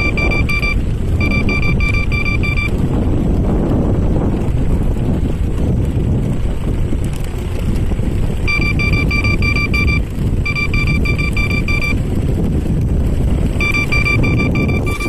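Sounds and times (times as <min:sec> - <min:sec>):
quick warning beeps: 0:00.0 - 0:02.8, 0:08.5 - 0:12.0, 0:13.6 - 0:15.0
wheels rumbling over planks: 0:00.0 - 0:15.0
wind on microphone: 0:00.0 - 0:15.0.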